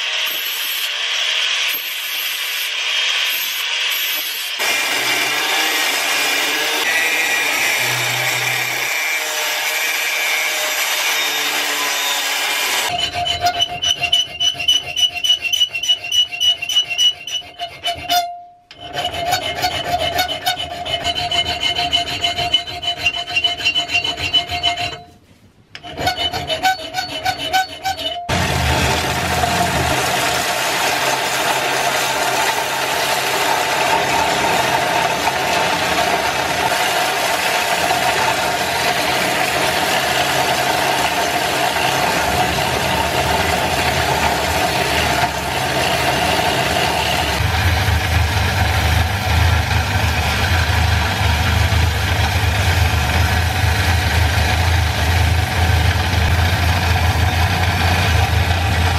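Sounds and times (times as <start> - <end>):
file rasping on steel: 0.0 - 25.2, 25.8 - 55.2
electric belt sander running: 28.3 - 58.9.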